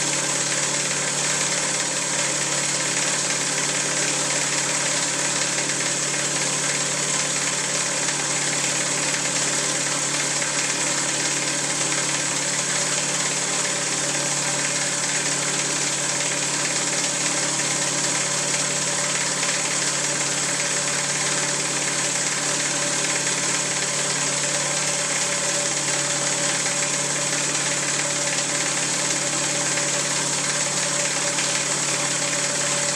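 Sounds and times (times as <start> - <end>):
vacuum pump motor humming: 0.0 - 32.9.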